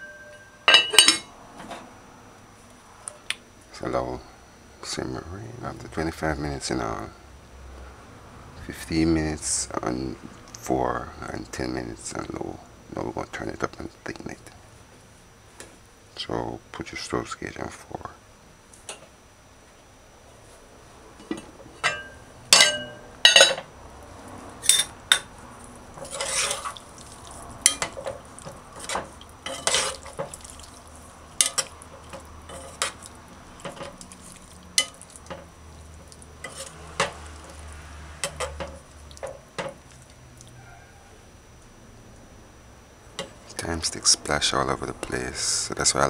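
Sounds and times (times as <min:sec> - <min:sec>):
pot lid clanking: 0:00.0 - 0:01.3
metal spoon stirring in pot: 0:24.6 - 0:40.2.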